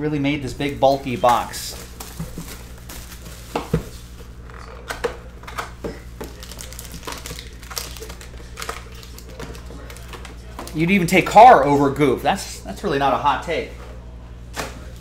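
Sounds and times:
foil packs rustling and tapping: 0.6 - 4.3, 4.9 - 11.3
plastic shrink wrap crinkling: 0.6 - 5.0, 6.2 - 11.3.

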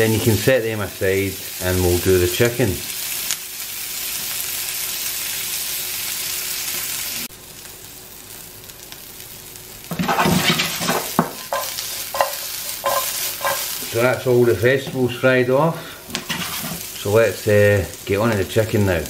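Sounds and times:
vegetables sizzling in a pan: 0.0 - 19.0
vegetables clattering in a pan: 9.9 - 13.9, 16.1 - 16.9.

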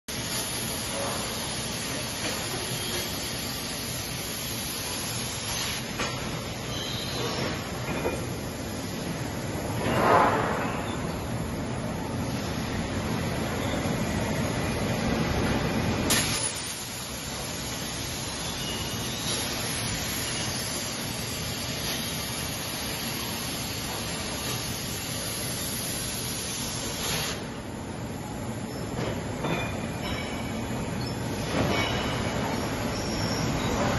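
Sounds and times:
plasma torch cutting metal hissing: 0.1 - 6.0, 16.1 - 27.5.

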